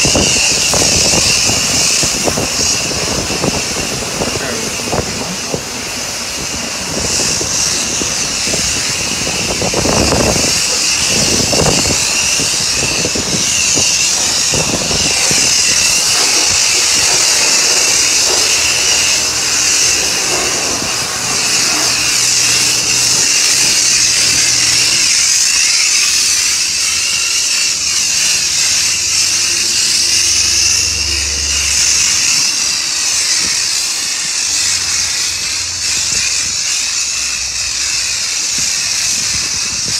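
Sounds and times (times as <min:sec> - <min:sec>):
pressure washer spray hissing: 0:00.0 - 0:39.9.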